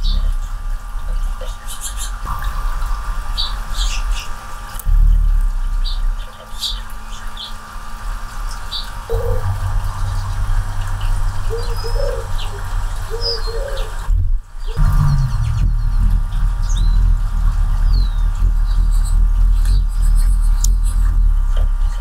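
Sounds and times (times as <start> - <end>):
low wing hum: 0.0 - 22.0
hummingbird chip notes: 2.2 - 22.0
short low notes: 9.1 - 21.5.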